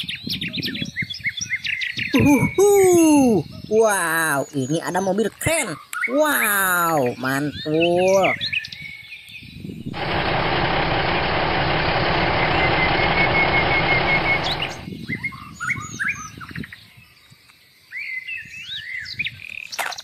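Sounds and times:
small birds chirping: 0.0 - 10.0, 12.2 - 20.0
loud steady noise: 9.8 - 14.9.

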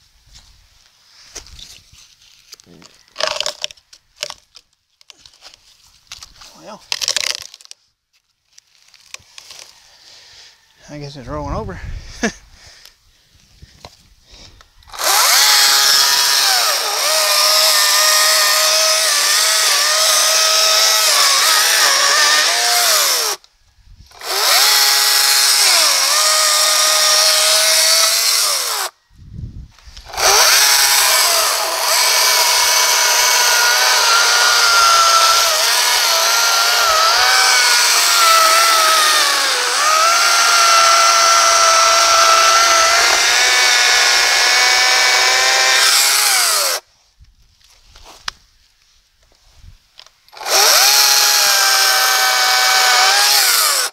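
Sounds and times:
electric chainsaw cutting log: 7.0 - 7.6, 14.9 - 23.4, 24.1 - 29.0, 30.1 - 46.8, 50.3 - 53.9.

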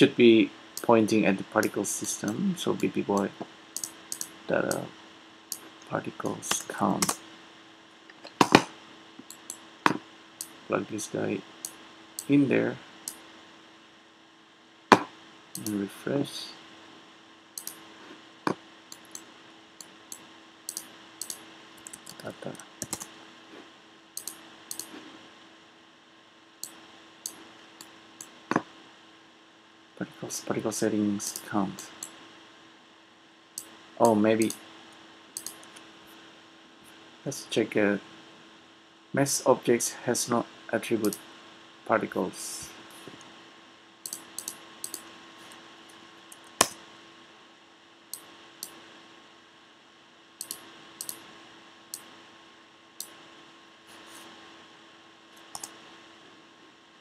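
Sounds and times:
faint steady hum: 0.0 - 57.0
keyboard and mouse clicks: 3.8 - 4.8, 6.5 - 7.2, 8.1 - 10.6, 14.9 - 15.8, 17.6 - 17.8, 18.5 - 23.1, 24.2 - 25.0, 35.4 - 35.8, 44.0 - 45.1, 50.4 - 51.2, 55.5 - 55.8.

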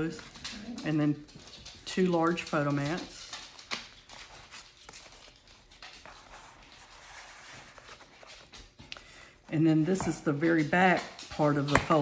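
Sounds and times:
paper rustling: 2.0 - 8.9.

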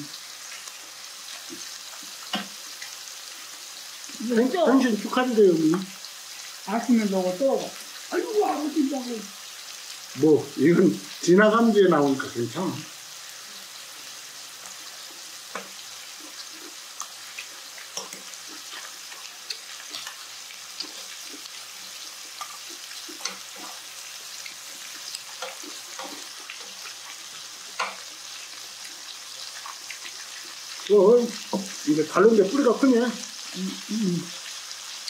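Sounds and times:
meat sizzling in a frying pan: 0.0 - 35.0.

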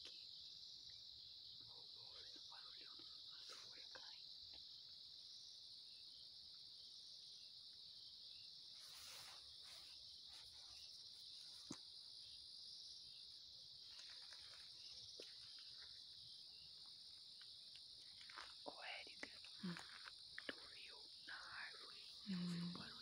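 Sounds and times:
night insects chorus: 0.0 - 23.0
rustle: 8.4 - 23.0.

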